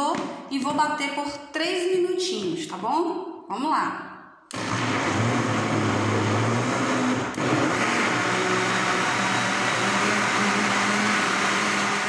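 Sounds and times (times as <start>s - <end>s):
electric blender running: 4.5s - 12.0s.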